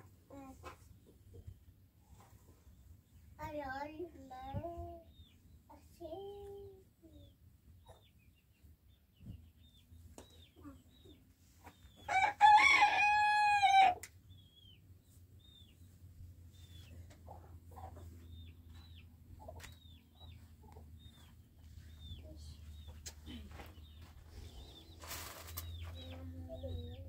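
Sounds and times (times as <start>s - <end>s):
small birds chirping: 0.2s - 12.6s, 14.0s - 27.0s
rooster crowing: 12.1s - 14.0s.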